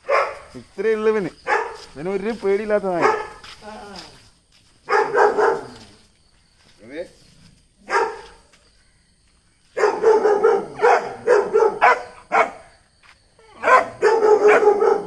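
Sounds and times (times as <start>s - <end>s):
dog barking: 0.0s - 0.5s, 1.5s - 1.8s, 3.0s - 3.4s, 4.9s - 5.8s, 7.9s - 8.4s, 9.8s - 12.7s, 13.6s - 15.0s.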